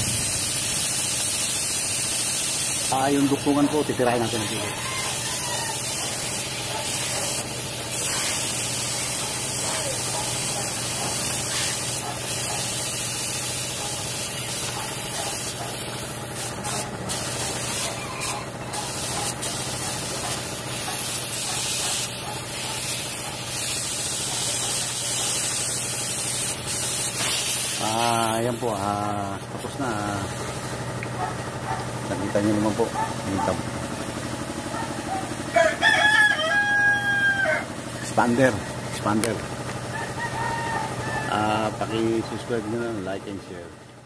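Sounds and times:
steady low hum: 0:00.0 - 0:04.2, 0:28.4 - 0:35.8
paint spray gun hissing: 0:00.0 - 0:35.4.

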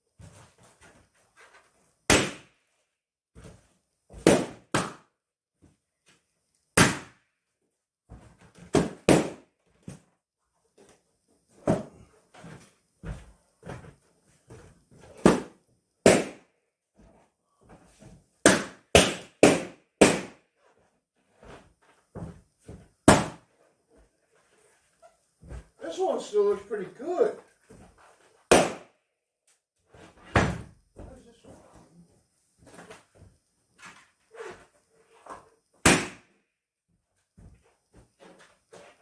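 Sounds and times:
balloons popping: 0:28.5 - 0:28.9.

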